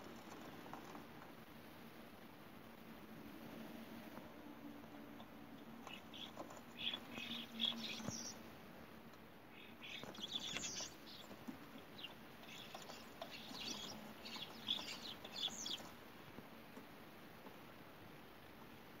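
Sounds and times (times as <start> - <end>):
starling chirping: 5.8 - 8.4, 9.5 - 16.0.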